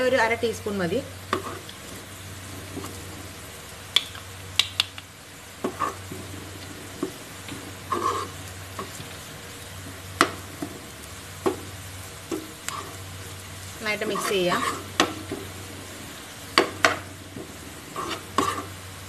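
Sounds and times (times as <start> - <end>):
food sizzling in oil: 0.0 - 19.0
spoon scraping frying pan: 1.3 - 1.8, 5.6 - 6.1, 6.9 - 9.0, 12.3 - 13.0, 13.9 - 15.5, 16.5 - 18.8.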